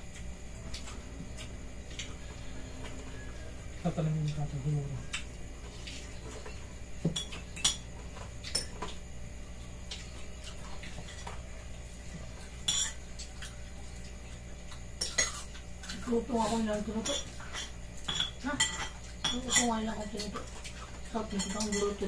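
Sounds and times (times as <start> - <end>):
low steady hum: 0.0 - 22.0
cutlery clinking on plates: 7.0 - 9.0, 12.6 - 13.6, 17.0 - 22.0.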